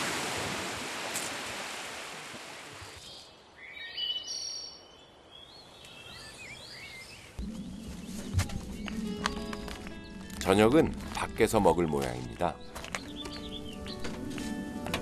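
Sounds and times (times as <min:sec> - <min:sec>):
small waves washing on shore: 0:00.0 - 0:03.0
birds chirping: 0:02.8 - 0:14.9.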